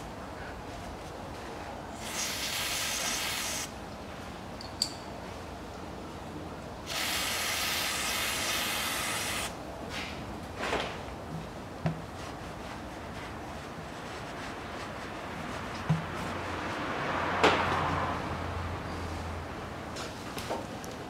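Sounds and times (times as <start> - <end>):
aerosol spray hissing: 2.0 - 3.7, 6.9 - 9.5.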